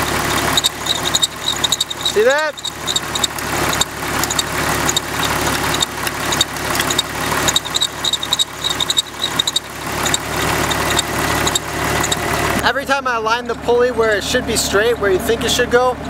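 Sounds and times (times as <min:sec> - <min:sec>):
car engine idling: 0:00.0 - 0:16.0
belt squeaking in short chirps: 0:00.4 - 0:12.3.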